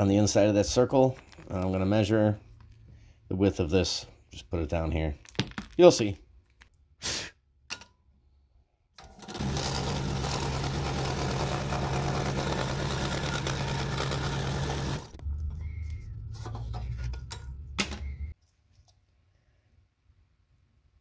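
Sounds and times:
scroll saw blade chatter: 0:09.4 - 0:15.1.

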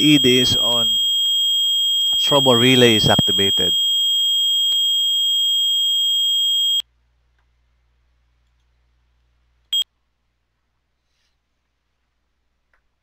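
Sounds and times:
high-pitched electronic alarm tone: 0:00.0 - 0:06.8.

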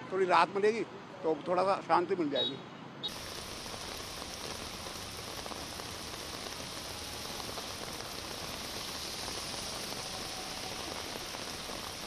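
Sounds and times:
rain falling on wet street: 0:03.1 - 0:12.0.

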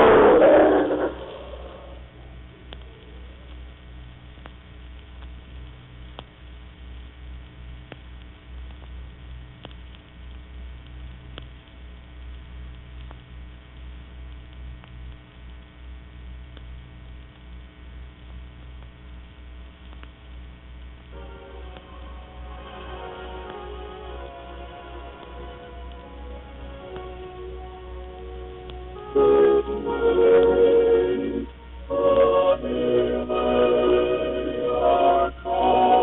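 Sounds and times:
electrical mains hum: 0:00.0 - 0:36.0
faint clicks: 0:02.4 - 0:21.1.

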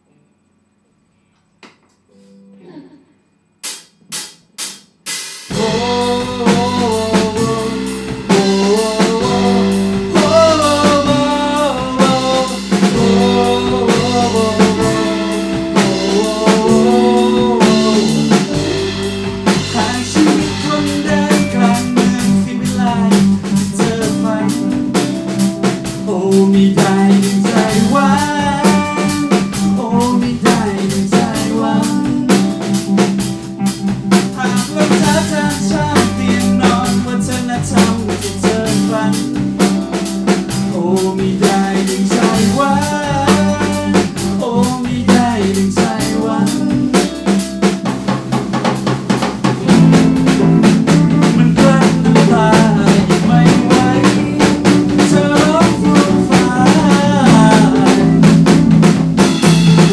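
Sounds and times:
drum kit: 0:03.6 - 0:59.9
rock band playing live: 0:05.4 - 0:59.9
man singing lead vocal: 0:05.5 - 0:32.8, 0:34.3 - 0:39.9, 0:40.5 - 0:47.4, 0:51.0 - 0:58.6
electric guitar: 0:05.5 - 0:59.9.

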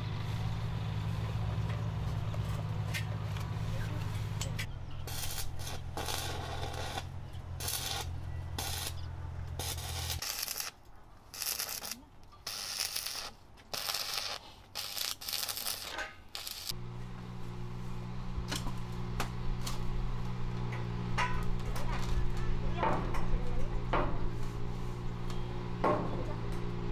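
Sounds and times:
arc welding crackling: 0:04.4 - 0:23.9.

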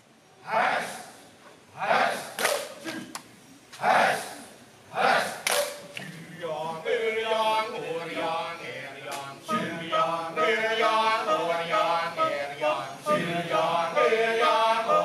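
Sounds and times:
sharp short shout or clap: 0:02.3 - 0:03.2, 0:05.4 - 0:05.8
men's chorus chanting: 0:03.8 - 0:15.0.

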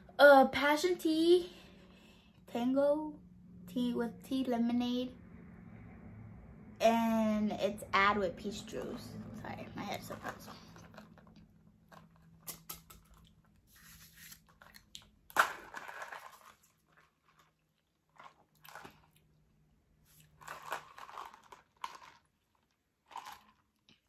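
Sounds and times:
slurping through a straw: 0:20.0 - 0:24.0.

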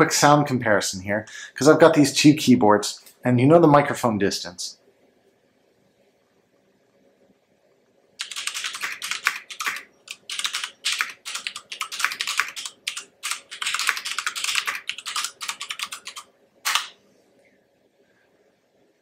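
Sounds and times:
fast mechanical keyboard typing: 0:08.2 - 0:16.9.

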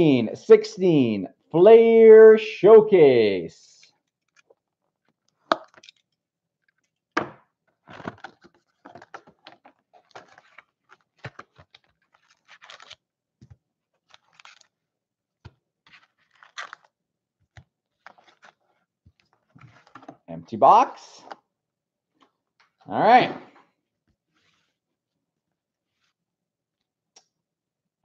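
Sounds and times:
foil packs crinkling and rustling: 0:07.9 - 0:13.0, 0:14.0 - 0:14.8, 0:15.9 - 0:16.9.

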